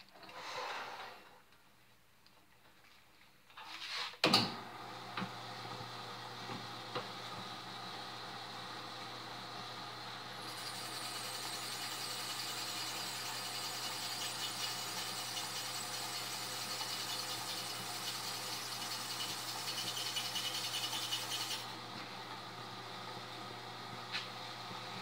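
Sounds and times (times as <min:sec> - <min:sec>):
drill press motor running: 0:05.2 - 0:23.2
drill bit squealing on steel: 0:10.5 - 0:21.6.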